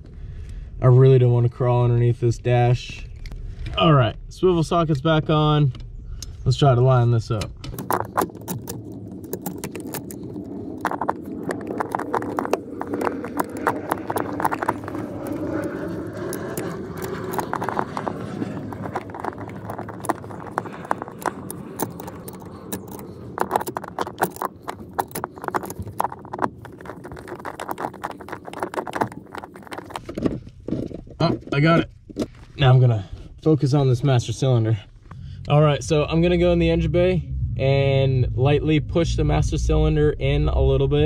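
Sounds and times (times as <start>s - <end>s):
metal clinks and rattles: 7.7s - 31.2s.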